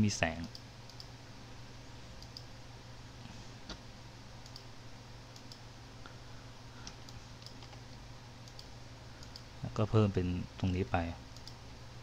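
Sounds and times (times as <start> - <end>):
computer mouse clicks: 0.4 - 1.1, 2.2 - 2.5, 4.4 - 4.7, 5.3 - 5.6, 6.8 - 9.5, 11.3 - 11.6.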